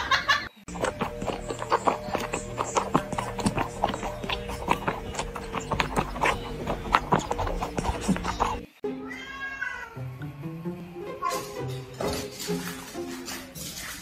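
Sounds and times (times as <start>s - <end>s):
cat suckling from a bottle: 0.7s - 8.7s
background music with held notes: 0.7s - 14.0s.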